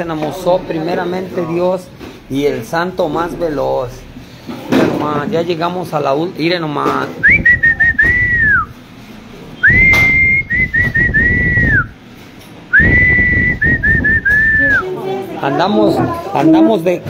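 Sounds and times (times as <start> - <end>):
person whistling a tune: 7.2 - 8.7, 9.6 - 12.0, 12.7 - 14.8.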